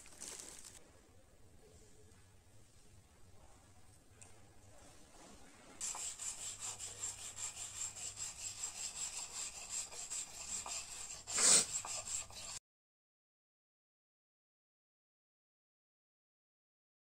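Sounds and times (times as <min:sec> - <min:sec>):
hand rubbing paste on stone: 0:05.8 - 0:12.6
loud scrape: 0:05.8 - 0:12.6.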